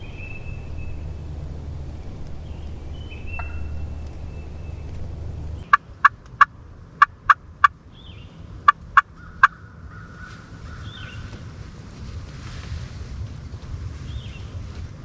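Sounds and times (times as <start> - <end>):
wild turkey clucking: 0.0 - 7.8
wind rumble on microphone: 0.0 - 15.0.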